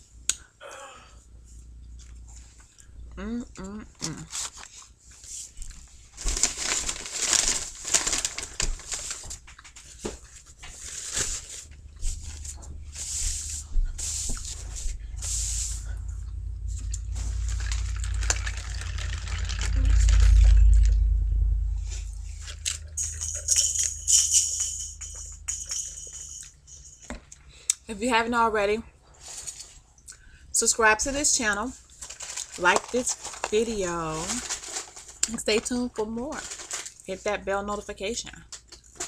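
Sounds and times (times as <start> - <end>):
paper wrapper rustling: 4.1 - 15.6, 16.6 - 21.0, 31.9 - 37.1
low rumble: 10.6 - 27.0.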